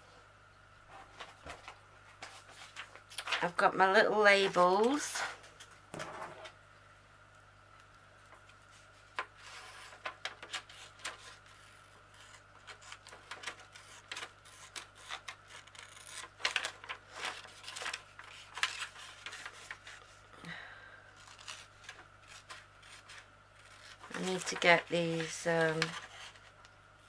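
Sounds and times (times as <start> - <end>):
paper rustling: 1.1 - 3.6, 8.7 - 20.2, 21.2 - 26.6
scissors snipping paper: 10.2 - 20.0, 21.2 - 26.4.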